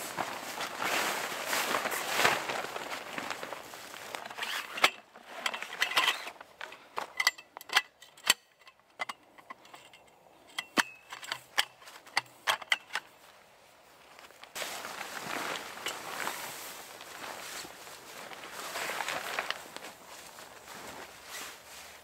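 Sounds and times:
tent canvas rustling: 0.0s - 6.6s, 13.0s - 22.0s
tent pole sections clicking: 1.8s - 13.2s, 15.5s - 20.4s.

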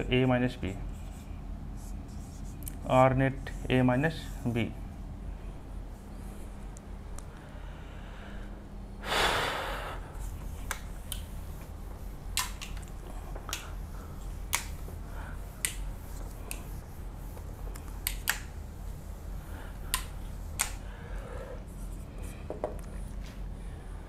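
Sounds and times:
whiteboard being wiped: 0.7s - 2.6s, 3.3s - 4.8s, 10.1s - 20.8s.

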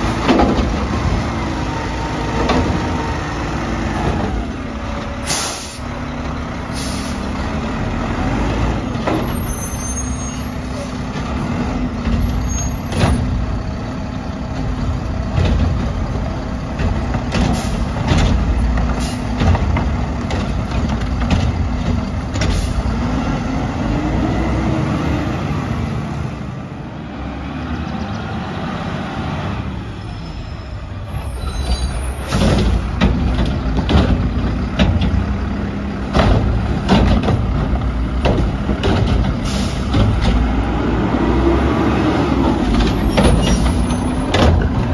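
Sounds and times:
garbage truck engine revving: 0.0s - 44.9s
air brake hissing: 5.2s - 5.9s, 6.7s - 7.3s, 39.4s - 39.9s
metal clanking and banging: 14.5s - 22.9s, 31.6s - 40.5s, 42.4s - 44.9s.

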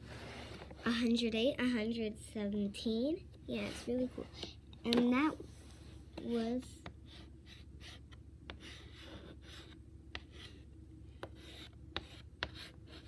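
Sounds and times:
chalk scratching on chalkboard: 6.2s - 13.0s.

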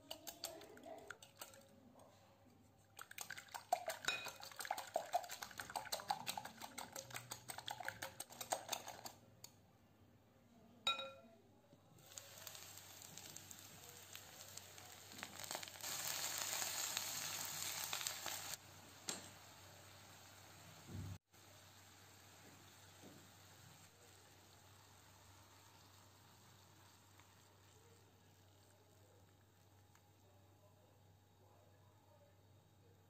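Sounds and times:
whisk beating eggs in glass bowl: 0.0s - 1.7s, 3.0s - 9.2s
whisk tapping bowl: 0.0s - 1.7s, 3.0s - 9.2s
liquid poured into pan: 2.9s - 9.2s, 12.0s - 20.9s, 21.6s - 29.9s
slices frying in a pan: 12.0s - 29.8s.

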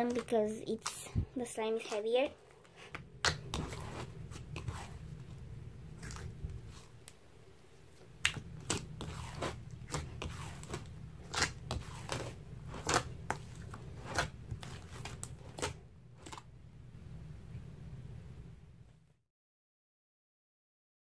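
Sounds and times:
slime wet pops and crackles: 8.2s - 8.9s.

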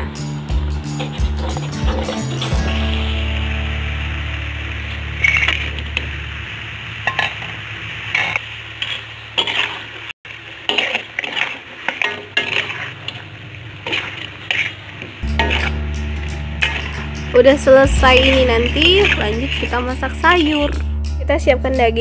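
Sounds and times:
metal spatula scraping a wok: 1.0s - 3.0s, 5.2s - 5.8s, 7.0s - 20.7s.

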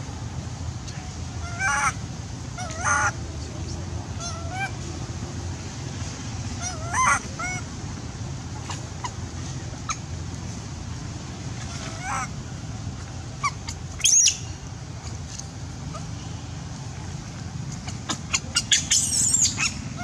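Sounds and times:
baby monkey crying: 1.4s - 2.0s, 2.6s - 3.2s, 4.2s - 4.8s, 6.6s - 7.7s, 11.7s - 12.4s, 13.4s - 14.3s, 17.7s - 20.0s.

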